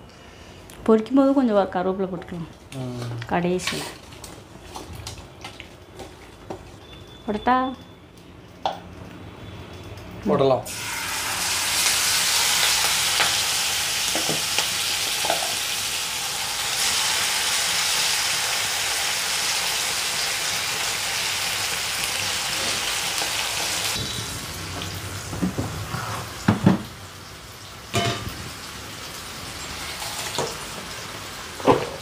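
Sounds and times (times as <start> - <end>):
prawns sizzling in oil: 10.7 - 32.0.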